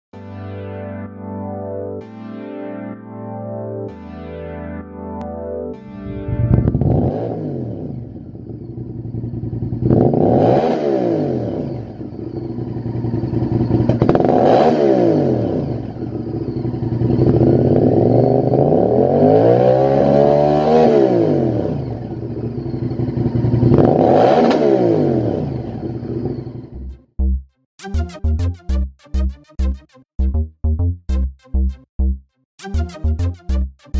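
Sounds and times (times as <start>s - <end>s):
motorcycle engine idling and revving: 6.0s - 27.4s.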